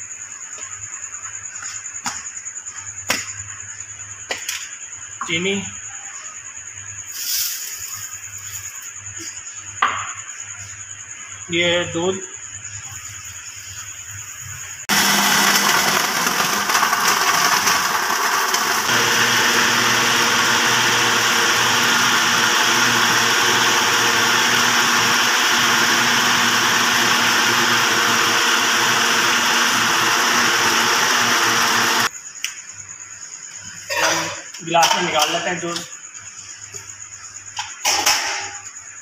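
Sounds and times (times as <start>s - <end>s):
electric blender running: 14.9s - 32.1s.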